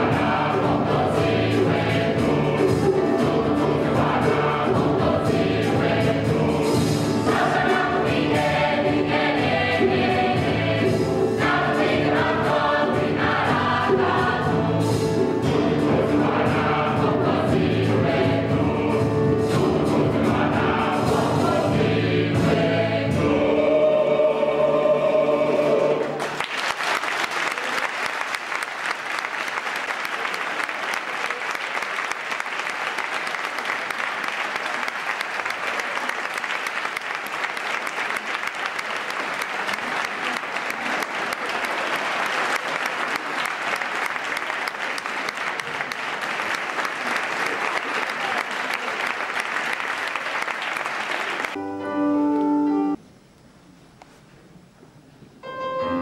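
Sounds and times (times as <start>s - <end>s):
drums keeping a steady beat: 0.0s - 23.9s
bass: 0.0s - 26.2s
gospel choir singing: 0.0s - 26.3s
piano: 0.0s - 26.5s, 51.4s - 53.4s, 55.2s - 56.0s
audience applause: 26.1s - 51.6s.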